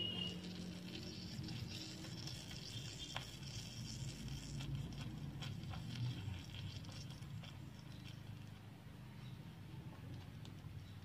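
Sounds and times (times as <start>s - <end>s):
food sizzling in frying pan: 0.0s - 8.3s
utensil clicking and scraping in pan: 0.0s - 8.7s.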